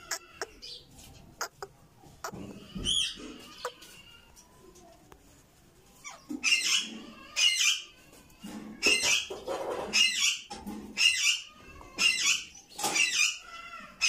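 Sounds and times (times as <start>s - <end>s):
parakeet squawking: 1.4s - 3.8s.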